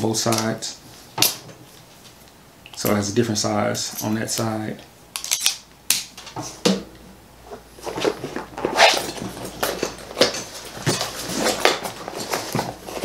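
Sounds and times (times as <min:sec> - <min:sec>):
tool bag rustling: 0:07.5 - 0:13.0.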